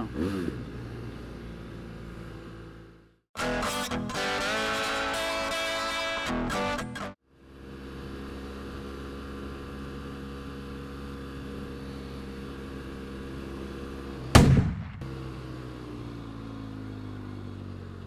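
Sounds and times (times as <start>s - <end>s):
guitar music: 3.4s - 7.2s
motorcycle engine running: 7.3s - 18.0s
gunshot-like bang: 14.3s - 15.0s.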